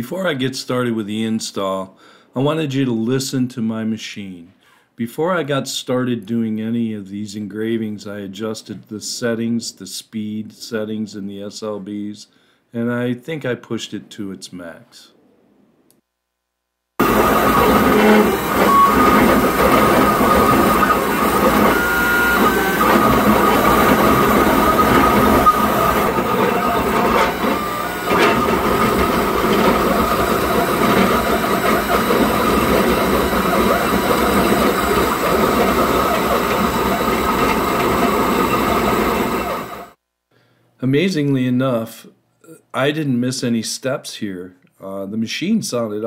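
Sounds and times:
steady motor whine: 0:17.0 - 0:40.0
stepper motors mechanical chatter: 0:17.0 - 0:40.0.

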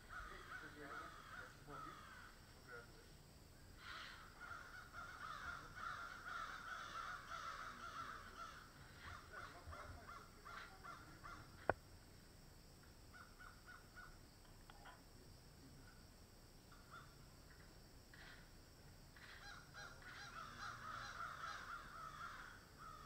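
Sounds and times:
crow cawing: 0:00.0 - 0:02.9, 0:03.8 - 0:11.7, 0:13.1 - 0:14.1, 0:16.7 - 0:17.3, 0:19.2 - 0:23.0.

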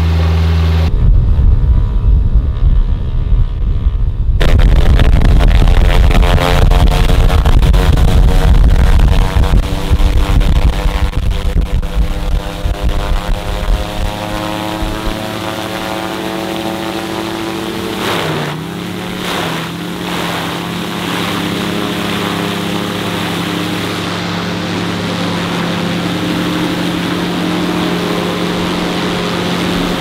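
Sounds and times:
aircraft engine and propeller running: 0:00.0 - 0:30.0.

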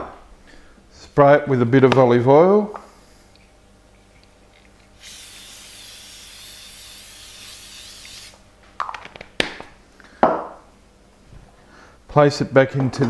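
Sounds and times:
spray can hissing: 0:05.0 - 0:08.4.

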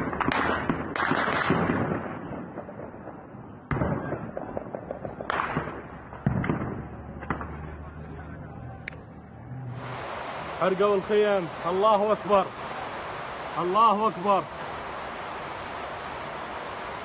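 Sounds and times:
gunfire: 0:00.0 - 0:07.7.

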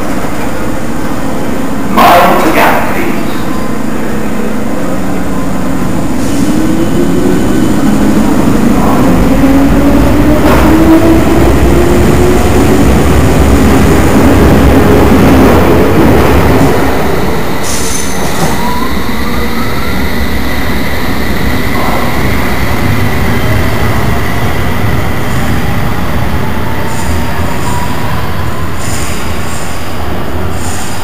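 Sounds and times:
train wheels rumbling: 0:00.0 - 0:31.0.

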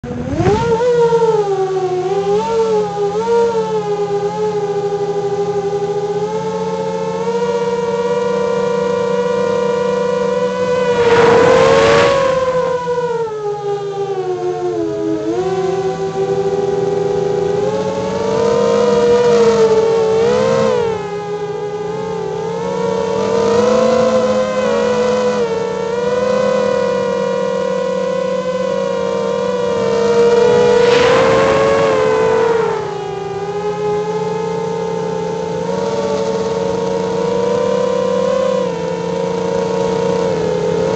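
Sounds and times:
quadcopter propellers whining: 0:00.0 - 0:40.9
rushing sound: 0:10.6 - 0:13.2, 0:29.8 - 0:33.8.

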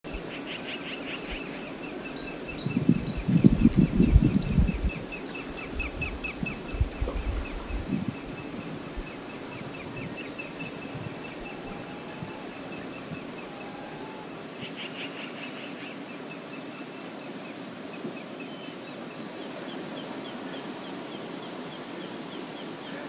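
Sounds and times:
high bird calls: 0:00.2 - 0:17.2.

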